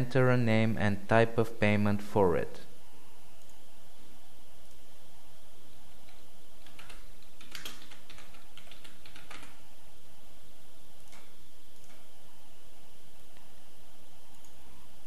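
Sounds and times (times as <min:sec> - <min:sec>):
typing on computer keyboard: 0:05.9 - 0:09.6.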